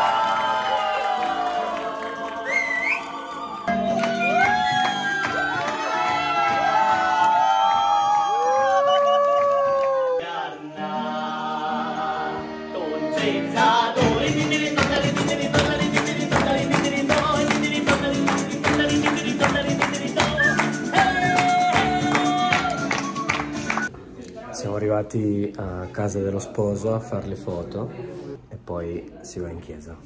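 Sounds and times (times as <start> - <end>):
acoustic guitar strumming: 3.7 - 7.0, 10.7 - 23.9
man singing: 10.0 - 23.2
tambourine beat: 13.3 - 23.9.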